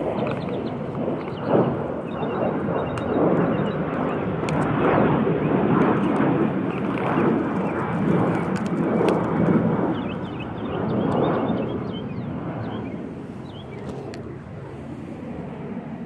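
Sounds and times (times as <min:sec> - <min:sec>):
wind buffeting microphone: 0:00.0 - 0:16.0.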